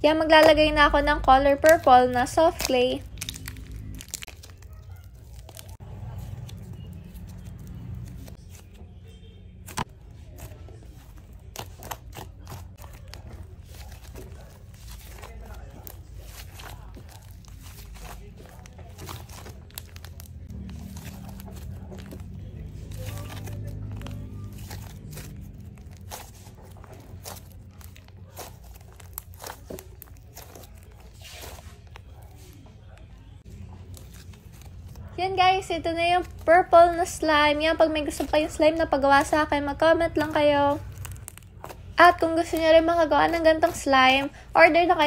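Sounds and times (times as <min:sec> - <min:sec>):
slime crackling and popping: 0:00.3 - 0:08.4, 0:11.1 - 0:33.0, 0:40.3 - 0:44.2.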